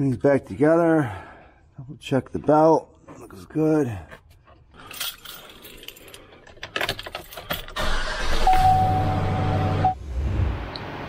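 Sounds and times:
clicking and rattling: 4.1 - 8.0
truck engine cranking and running: 6.4 - 9.8
steady high tone: 8.4 - 10.0.

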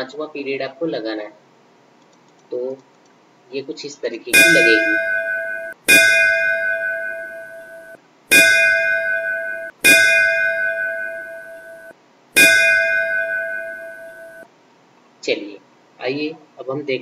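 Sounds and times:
school bell strikes: 4.4 - 14.5.

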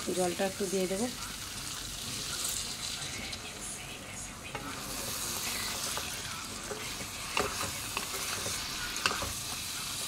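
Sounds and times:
meat sizzling in hot oil: 0.0 - 3.8, 4.5 - 10.0
spatula scraping and knocking pan: 4.6 - 9.6.

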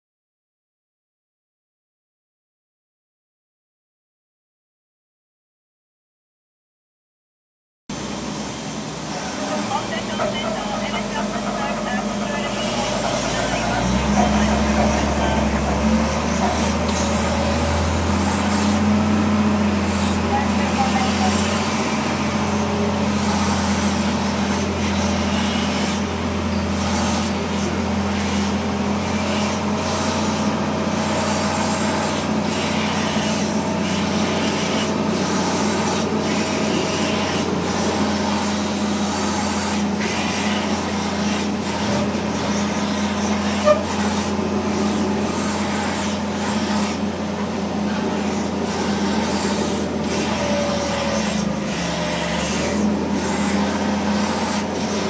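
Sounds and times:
rushing noise: 8.0 - 19.2
tug engine running under load: 8.0 - 55.0.

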